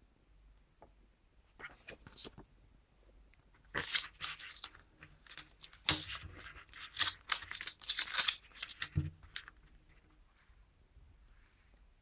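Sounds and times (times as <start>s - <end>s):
paper rustling and crinkling: 1.6s - 2.5s, 3.6s - 10.2s.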